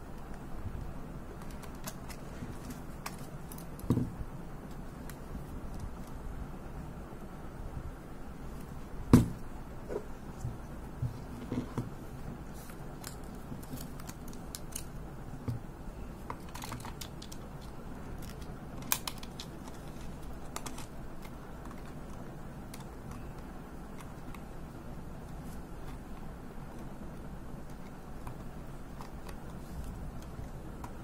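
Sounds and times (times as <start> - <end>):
film cartridge clicks and rustles: 16.2 - 24.5.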